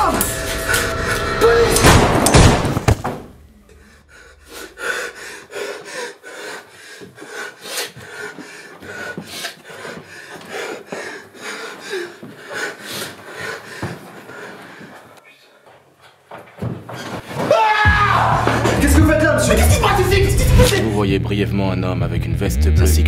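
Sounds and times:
loud bang: 0:00.0 - 0:03.6
man breathing heavily: 0:03.6 - 0:16.2.

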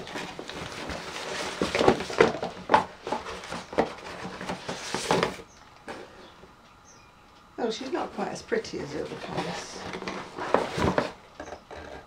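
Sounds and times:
cardboard box rustling and scraping: 0:00.0 - 0:06.3, 0:08.9 - 0:12.0.

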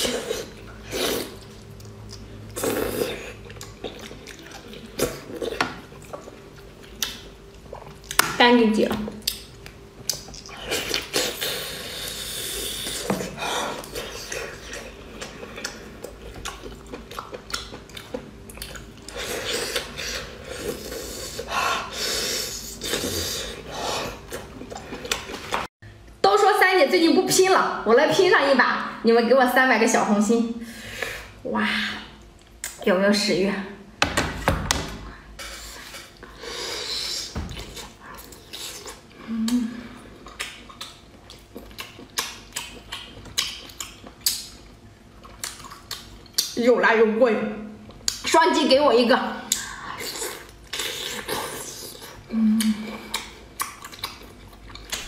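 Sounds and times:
sucking and chewing: 0:00.0 - 0:08.2, 0:09.2 - 0:25.7, 0:35.4 - 0:46.6, 0:49.4 - 0:55.0.

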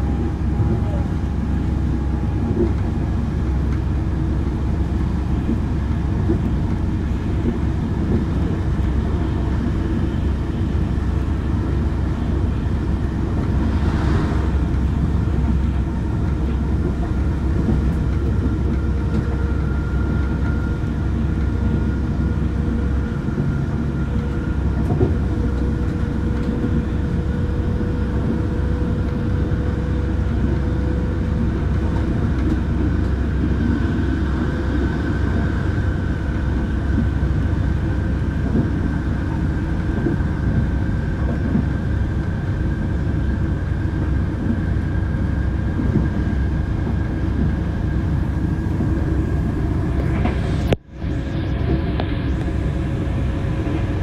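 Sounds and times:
diesel locomotive rumble: 0:00.0 - 0:54.0
brief rushing noise: 0:13.7 - 0:14.7.

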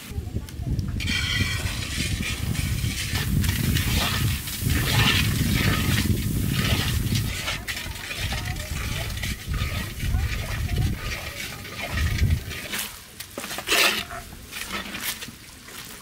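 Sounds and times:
low rumble: 0:00.3 - 0:12.6
hot oil sizzling in a wok: 0:01.0 - 0:12.7
ladle stirring food: 0:01.0 - 0:16.0.

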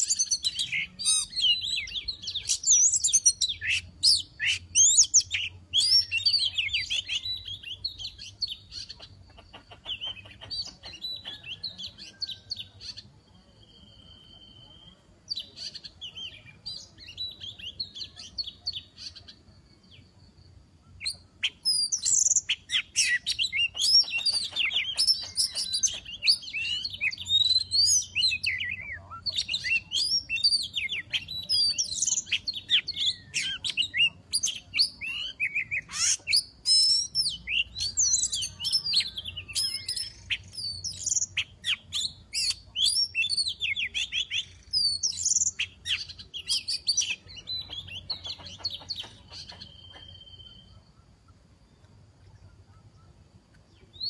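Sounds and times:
bird singing whistles and chirps: 0:00.0 - 0:09.1, 0:09.8 - 0:20.0, 0:20.8 - 0:51.0, 0:52.4 - 0:54.0.

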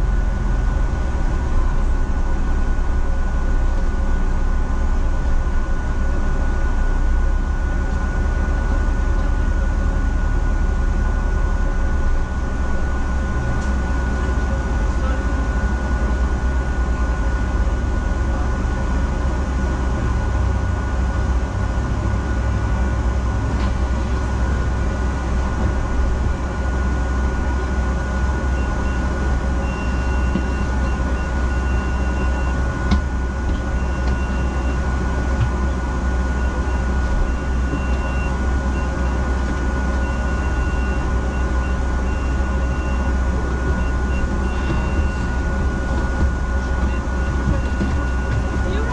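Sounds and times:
bus engine and road rumble: 0:00.0 - 0:48.9.

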